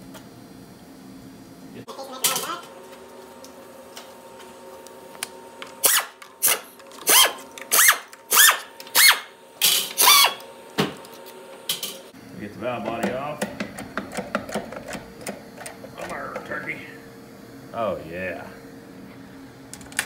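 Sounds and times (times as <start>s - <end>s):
air ratchet whirring: 5.8s - 9.3s, 10.0s - 10.4s.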